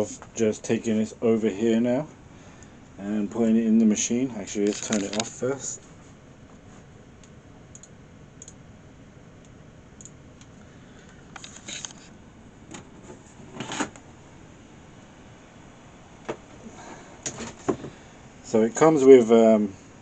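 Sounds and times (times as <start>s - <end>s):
low background hiss: 0.0s - 11.0s, 17.9s - 20.0s.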